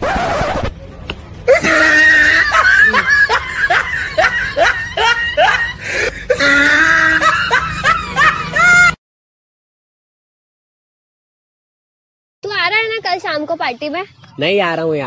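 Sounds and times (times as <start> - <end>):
high-pitched laughter: 1.5 - 9.0.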